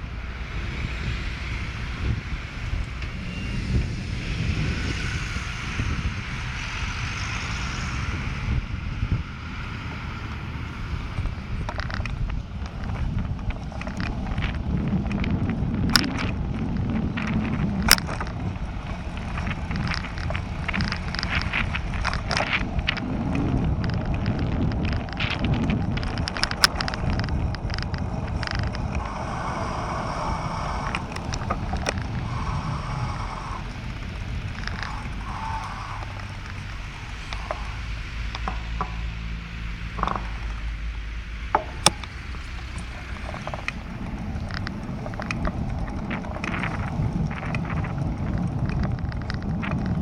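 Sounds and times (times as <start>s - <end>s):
wind rush on microphone: 0.0s - 50.0s
bicycle clicks and rattles: 11.1s - 50.0s.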